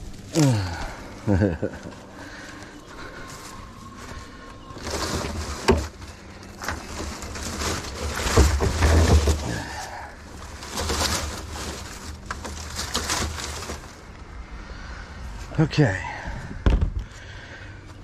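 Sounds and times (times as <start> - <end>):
wood cracking: 0.0 - 14.2
brush rustling: 0.0 - 15.5.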